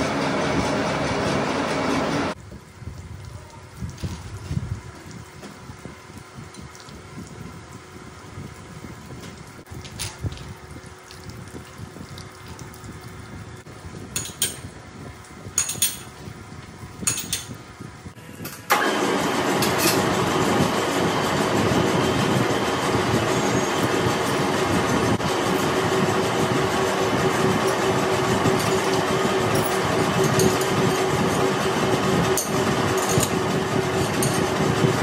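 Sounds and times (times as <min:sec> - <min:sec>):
lathe running: 0:00.0 - 0:02.4, 0:18.7 - 0:35.0
steady hum: 0:00.0 - 0:35.0
coolant trickling: 0:02.4 - 0:17.9.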